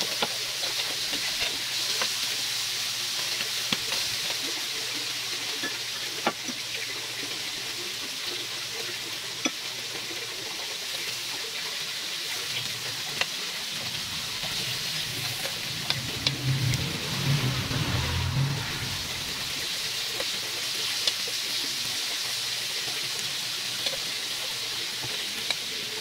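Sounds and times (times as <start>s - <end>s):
chicken sizzling on grill: 0.0s - 26.0s.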